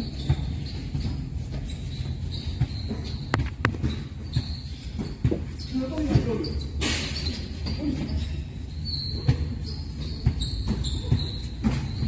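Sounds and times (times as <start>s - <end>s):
basketball bouncing on concrete: 0.0s - 6.4s, 9.2s - 12.0s
sneaker squeaks: 0.0s - 12.0s.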